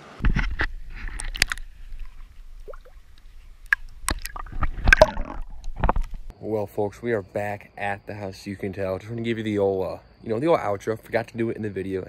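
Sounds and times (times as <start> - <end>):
water sloshing and gurgling: 0.2 - 6.3.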